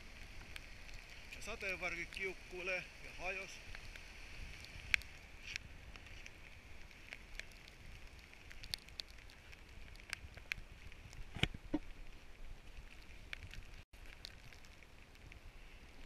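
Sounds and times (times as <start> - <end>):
raindrop ticks: 0.0 - 16.0
steady rain: 0.0 - 16.0
wind noise on microphone: 3.3 - 16.0.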